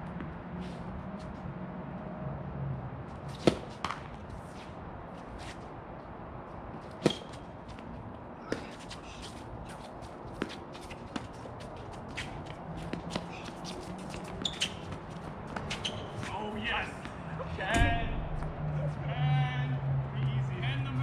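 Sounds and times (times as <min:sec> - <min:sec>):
tennis ball bouncing: 0:03.3 - 0:04.2, 0:07.0 - 0:07.4
tennis ball hitting racket: 0:03.3 - 0:04.2, 0:07.0 - 0:07.4
shuffling footsteps: 0:03.5 - 0:05.7, 0:06.6 - 0:17.2.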